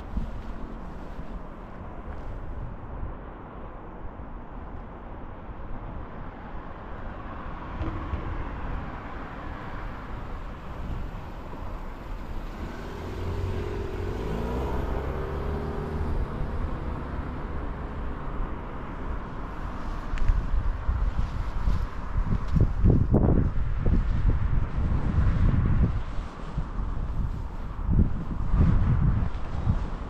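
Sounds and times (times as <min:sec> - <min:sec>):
low rumble of traffic: 0:00.0 - 0:30.0
wind: 0:00.0 - 0:30.0
vehicle passing by: 0:07.3 - 0:20.1.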